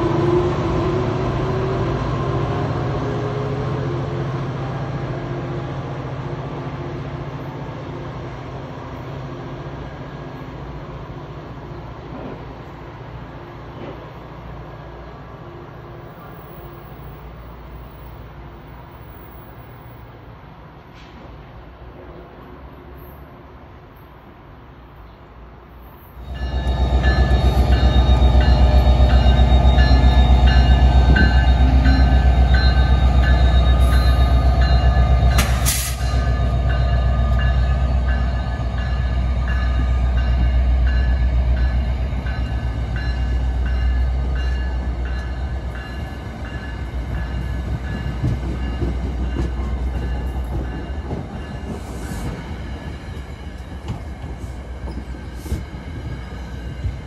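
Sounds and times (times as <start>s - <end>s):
train passing with deep rumble: 0.0s - 57.0s
train wheels rolling on rails: 11.4s - 24.1s, 25.8s - 57.0s.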